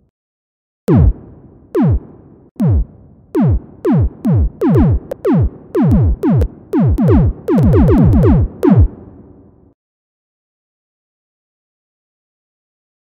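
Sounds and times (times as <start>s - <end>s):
synthesized drum hits: 0.9s - 8.9s.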